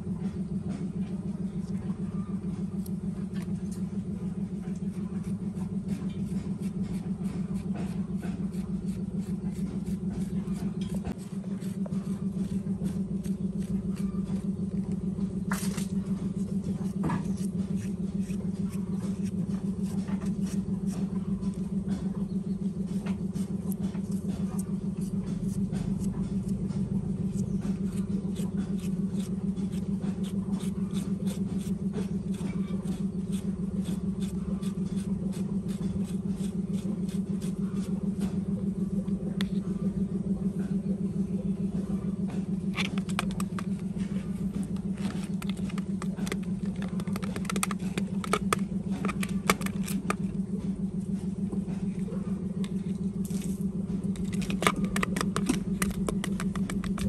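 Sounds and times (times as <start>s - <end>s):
low mechanical hum: 0.0s - 57.0s
knife scraping aloe gel: 5.2s - 14.5s, 16.8s - 21.0s, 28.3s - 38.0s, 54.2s - 57.0s
tapping and stirring in a plastic bowl: 44.8s - 50.2s, 54.2s - 57.0s.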